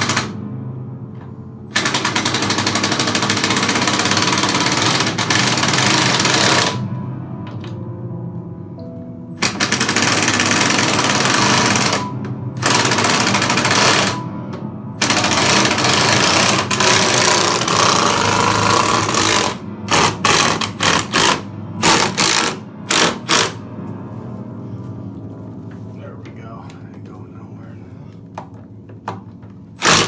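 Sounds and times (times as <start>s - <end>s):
music: 0.0s - 30.0s
cordless power driver driving screws: 29.8s - 30.0s.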